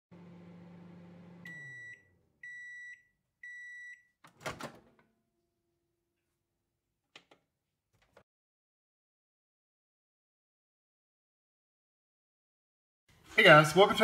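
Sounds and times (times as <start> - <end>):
microwave oven hum: 0.1 - 4.0.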